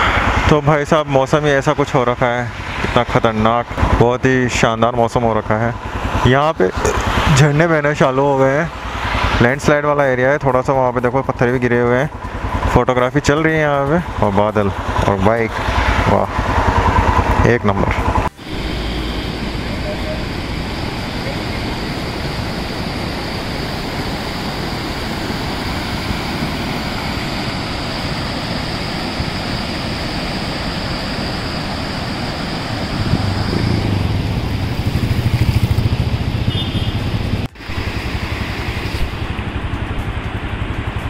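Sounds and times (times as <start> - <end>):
low rumble: 15.5 - 28.4
fast river rushing: 18.0 - 36.4.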